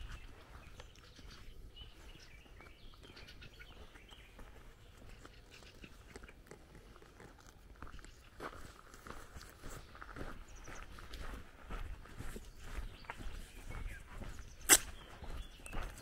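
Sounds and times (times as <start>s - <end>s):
bird chirps: 0.0s - 6.4s, 9.7s - 11.3s, 12.3s - 16.0s
footsteps on gravel: 0.0s - 16.0s.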